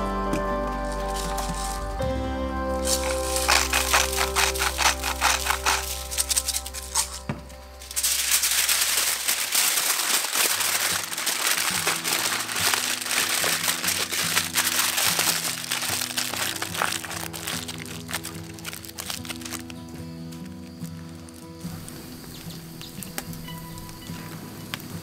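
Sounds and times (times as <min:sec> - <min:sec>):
aluminium foil crinkling: 0:00.8 - 0:02.0, 0:02.8 - 0:25.0.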